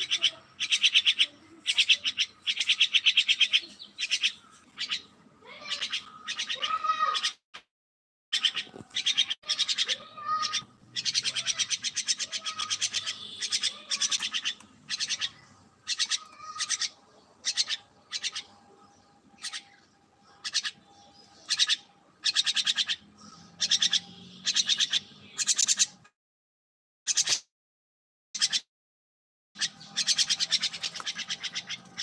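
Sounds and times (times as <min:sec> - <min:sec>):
myna calling harshly: 0:05.4 - 0:07.4, 0:09.4 - 0:16.9.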